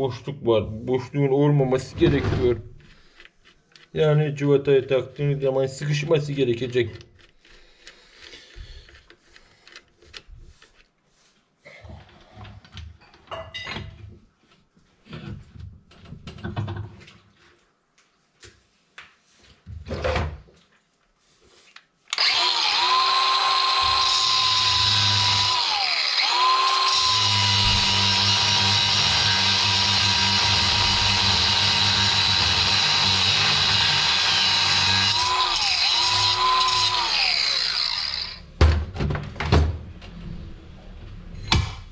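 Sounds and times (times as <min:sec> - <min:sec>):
angle grinder whining: 0:22.1 - 0:38.6.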